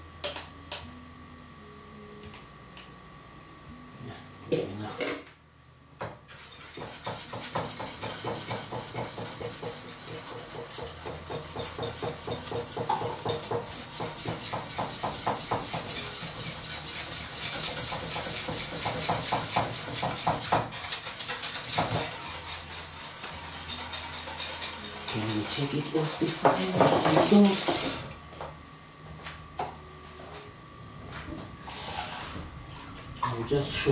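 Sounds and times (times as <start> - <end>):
utensil scraping a pot: 6.3 - 28.2, 31.6 - 33.9.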